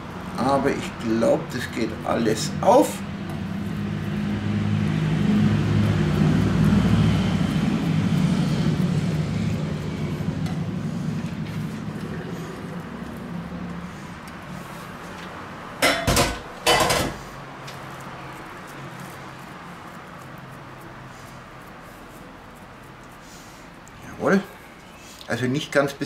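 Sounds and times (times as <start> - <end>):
low engine drone: 0.0 - 15.8.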